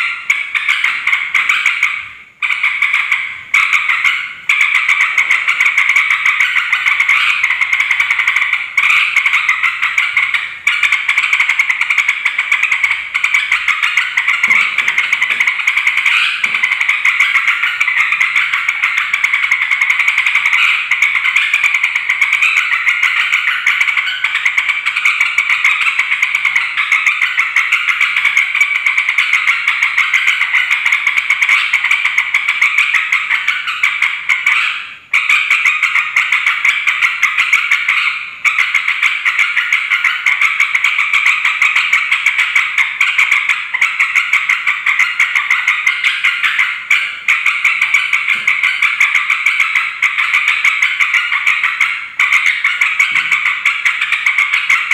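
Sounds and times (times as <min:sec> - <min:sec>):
bird rapid chatter: 0:00.0 - 0:54.9.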